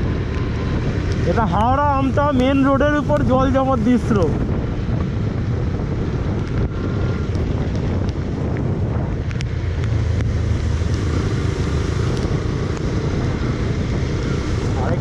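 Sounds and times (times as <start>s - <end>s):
motorcycle engine running: 0.0s - 15.0s
wind buffeting microphone: 0.0s - 15.0s.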